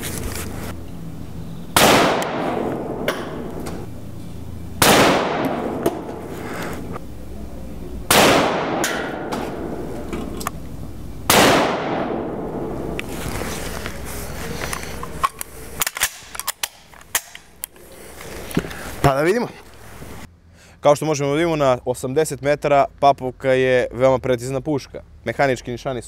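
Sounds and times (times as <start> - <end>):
rifle shots with echo: 1.8 - 3.9, 4.8 - 6.3, 8.1 - 10.1, 11.3 - 13.0.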